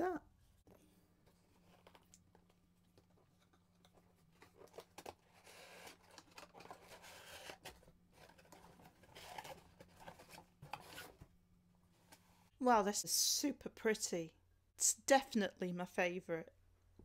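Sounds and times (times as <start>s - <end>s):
cardboard box rustling: 4.2s - 11.2s.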